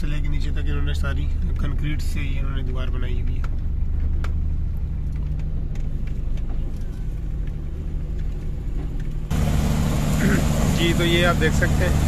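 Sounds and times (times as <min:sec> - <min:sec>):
diesel engine humming: 0:00.0 - 0:12.0
machine spraying concrete: 0:09.3 - 0:12.0.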